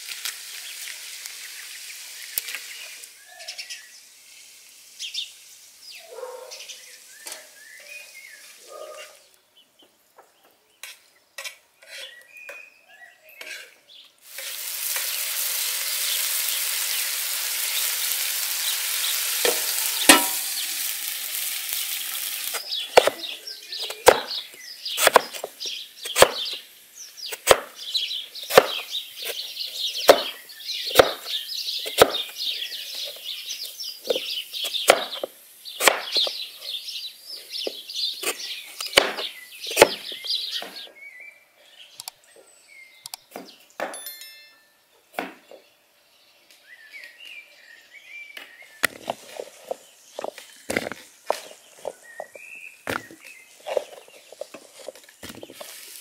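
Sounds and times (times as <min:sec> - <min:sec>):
liver sizzling in a pan: 0:00.0 - 0:06.0, 0:14.2 - 0:40.2, 0:55.4 - 0:56.0
spoon knocking on pan: 0:19.4 - 0:20.5
knife chopping on wooden board: 0:24.0 - 0:24.3, 0:25.0 - 0:25.5, 0:26.1 - 0:26.4, 0:27.3 - 0:27.7, 0:28.5 - 0:28.8, 0:30.1 - 0:30.4, 0:31.0 - 0:31.3, 0:31.9 - 0:32.3, 0:34.8 - 0:35.2, 0:35.8 - 0:36.3, 0:38.2 - 0:40.0.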